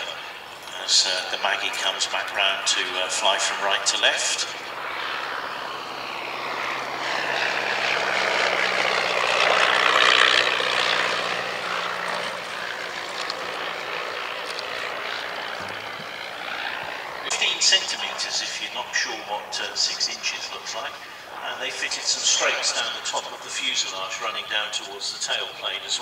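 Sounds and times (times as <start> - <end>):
propeller plane flying past: 0.0 - 26.0.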